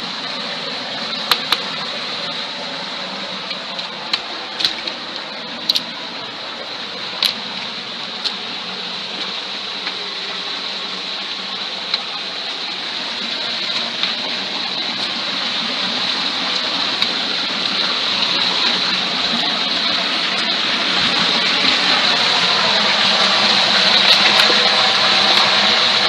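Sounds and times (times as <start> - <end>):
stream water over stones: 0.0 - 26.0.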